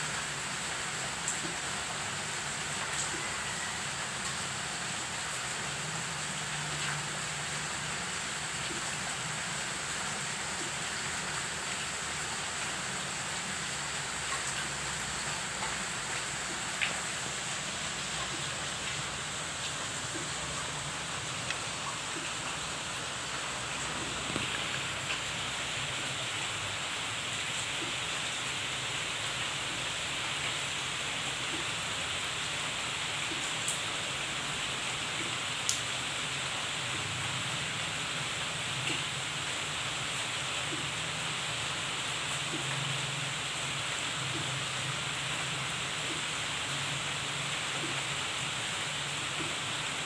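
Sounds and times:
rain falling on foliage: 0:00.0 - 0:50.0
sharp drip ticks: 0:21.4 - 0:22.7, 0:35.2 - 0:35.9.

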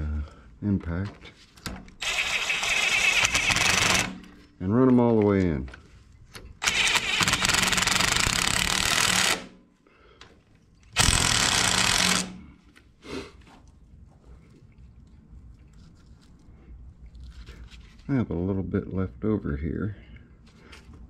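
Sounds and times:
impact driver hammering bolts: 0:02.0 - 0:04.4, 0:06.4 - 0:09.5, 0:11.0 - 0:12.4.

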